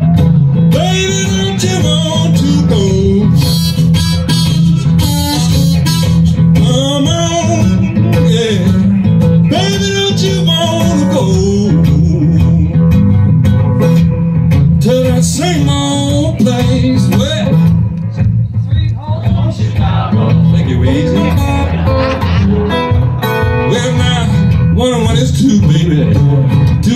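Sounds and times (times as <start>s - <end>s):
acoustic guitar strumming: 0.0s - 26.9s
harmonica bending notes: 0.2s - 12.3s, 20.1s - 25.0s.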